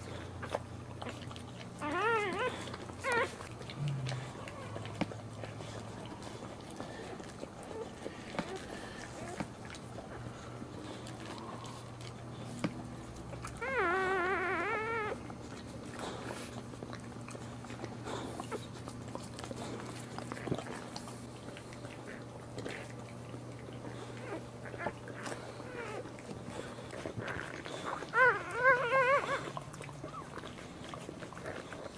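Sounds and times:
dog licking and rustling: 0.0s - 31.9s
steady low hum: 0.0s - 31.9s
puppy squealing: 1.8s - 3.4s, 13.6s - 15.2s, 27.3s - 30.4s.

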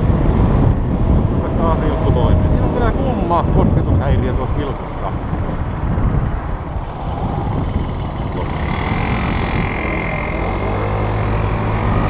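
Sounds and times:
wind rumble on microphone: 0.0s - 12.0s
moped engine: 4.4s - 12.0s.

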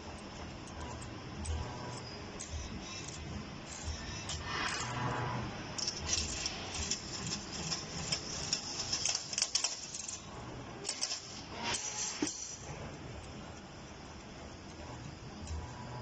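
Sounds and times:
wire-bending machine clicks and rattles: 5.7s - 13.4s.

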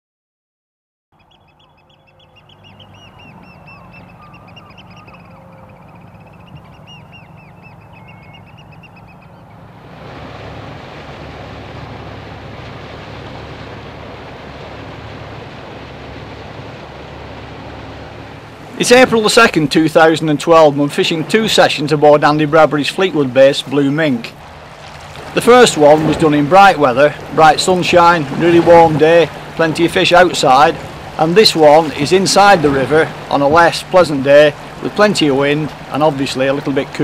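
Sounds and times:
birds calling high notes: 1.2s - 9.8s
motor boat rushing through water: 1.2s - 37.0s.

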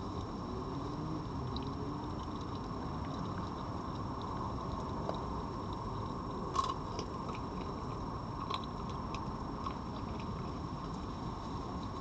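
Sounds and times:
background hiss: 0.0s - 12.0s
fox crunching dry food: 6.3s - 10.5s.

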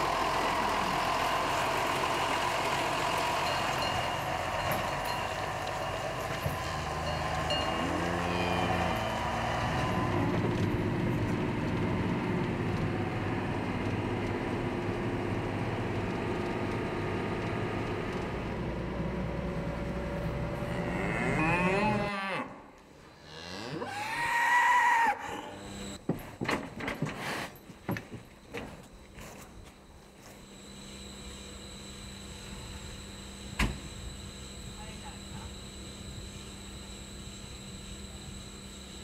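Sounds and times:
steady machine hum: 0.0s - 21.4s, 29.8s - 39.0s
cows mooing: 6.4s - 10.6s, 20.5s - 25.6s.

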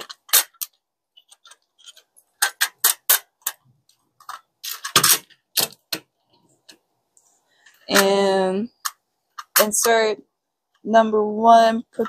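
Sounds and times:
plastic parts clattering: 0.0s - 6.8s
plastic parts clicking and tapping: 0.0s - 6.9s, 8.7s - 10.0s.

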